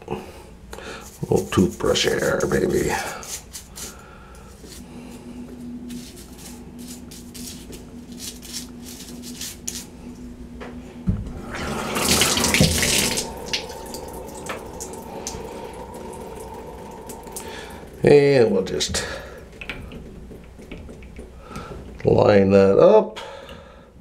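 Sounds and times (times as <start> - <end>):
water rushing from faucet: 11.4 - 20.0.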